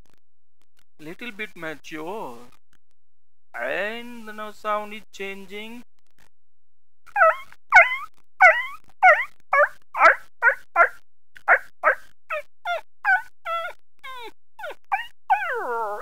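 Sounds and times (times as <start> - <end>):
person imitating puppy yelps: 3.6 - 3.8, 7.1 - 16.0.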